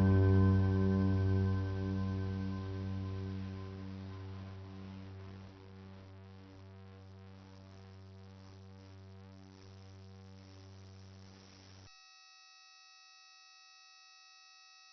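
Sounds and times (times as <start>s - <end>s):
ambient synthesizer drone music: 0.0s - 6.0s.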